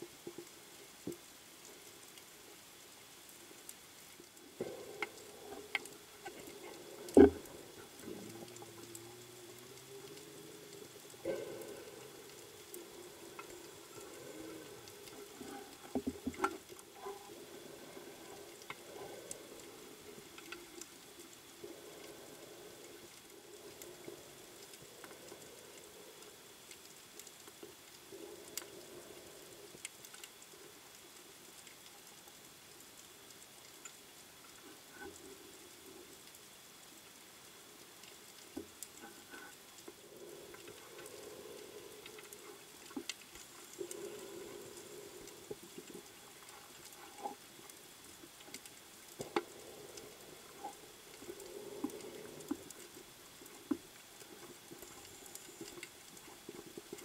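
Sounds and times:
scuba breathing swells: 39.9 - 47.4.

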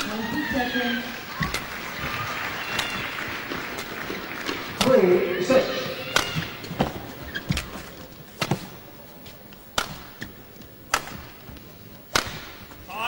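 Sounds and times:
crowd hum: 0.0 - 13.0
racket hitting shuttlecock: 1.4 - 8.8, 9.7 - 11.5, 12.1 - 12.8.

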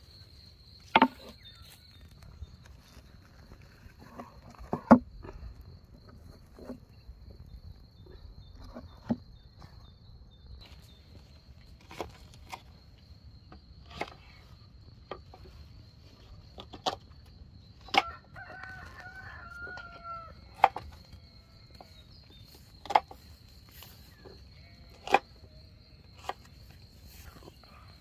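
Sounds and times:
rooster crowing: 18.0 - 21.6.

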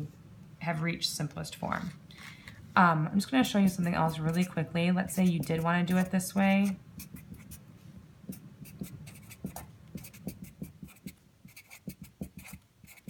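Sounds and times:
marker scratching on paper: 3.4 - 7.6, 8.3 - 13.0.

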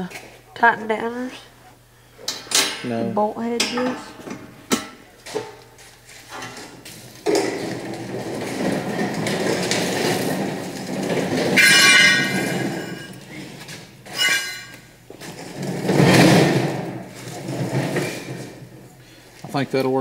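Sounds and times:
metal scraping and clattering: 3.6 - 19.0.

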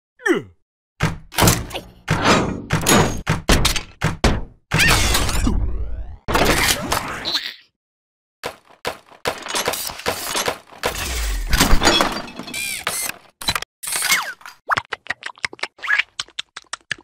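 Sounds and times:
toy robot clanks and crashes: 1.3 - 4.0, 9.3 - 13.6.

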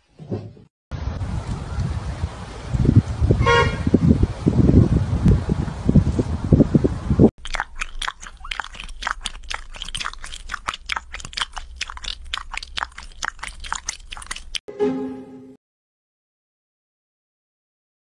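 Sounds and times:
cat lapping water: 7.4 - 14.6.

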